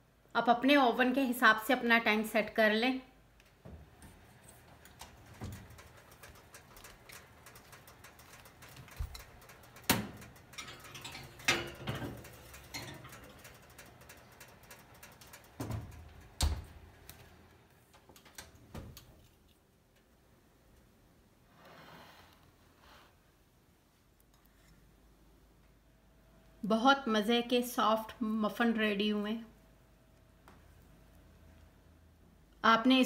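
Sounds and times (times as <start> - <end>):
metal muffin tin clanking: 5.3 - 16.3.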